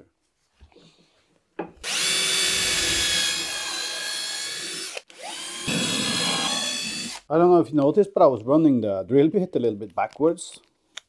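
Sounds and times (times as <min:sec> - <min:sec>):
power drill boring into wood: 0:01.8 - 0:07.3.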